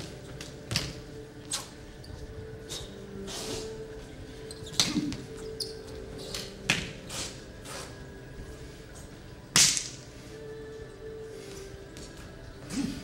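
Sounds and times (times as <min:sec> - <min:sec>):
faint steady hum: 0:00.0 - 0:13.0
hand slaps and foot stamps: 0:09.5 - 0:10.0.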